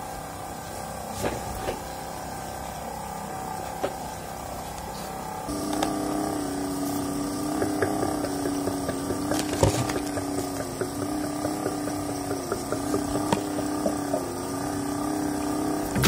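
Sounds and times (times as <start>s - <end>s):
motor and fan humming: 0.0s - 16.0s
water plinks and drips: 7.1s - 16.0s.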